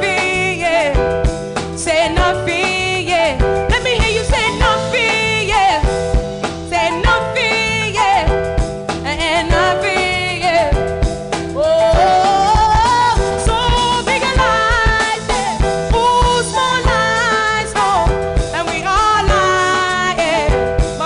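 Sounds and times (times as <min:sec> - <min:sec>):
woman singing with vibrato: 0:00.0 - 0:01.2, 0:01.8 - 0:06.0, 0:06.6 - 0:10.9, 0:11.6 - 0:21.0
bass guitar: 0:00.0 - 0:21.0
drums: 0:00.0 - 0:21.0
electric guitar: 0:10.0 - 0:18.6.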